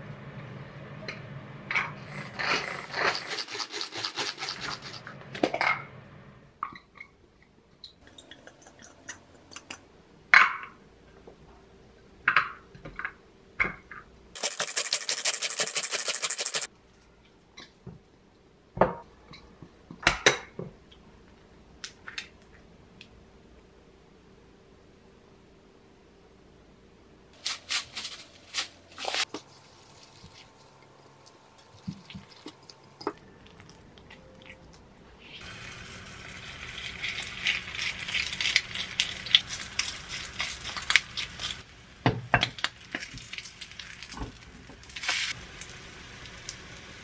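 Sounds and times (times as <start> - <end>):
manual food chopper rattling: 14.4 - 16.7.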